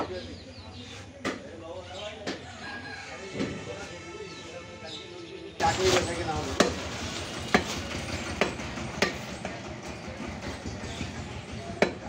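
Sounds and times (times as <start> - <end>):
cleaver chopping meat on wood: 11.8 - 12.0.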